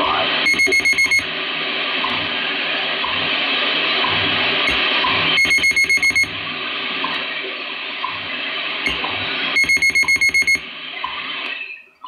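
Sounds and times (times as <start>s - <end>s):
radio band noise hiss: 0.0s - 12.0s
rapid high beeps: 0.4s - 1.3s, 4.7s - 6.3s, 9.6s - 10.6s.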